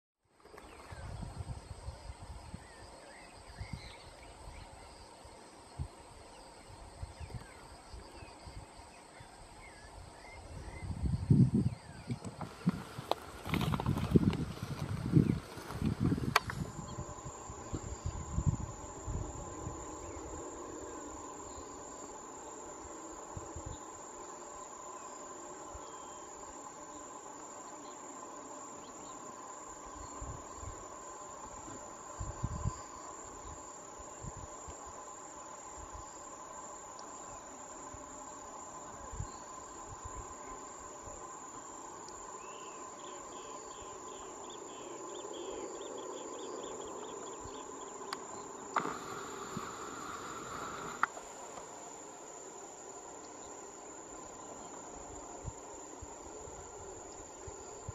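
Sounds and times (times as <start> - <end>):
insects trilling: 0.3 - 57.9.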